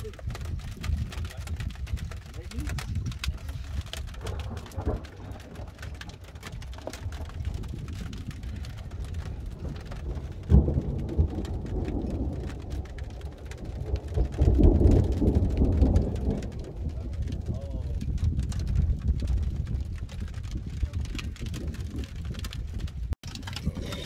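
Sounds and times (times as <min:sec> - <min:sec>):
heavy rain pattering: 0:00.0 - 0:24.0
thunder rumbling: 0:00.0 - 0:24.0.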